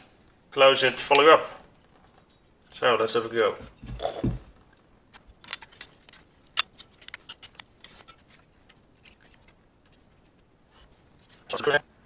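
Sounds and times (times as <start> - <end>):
plastic and metal parts clicking: 5.1 - 10.0.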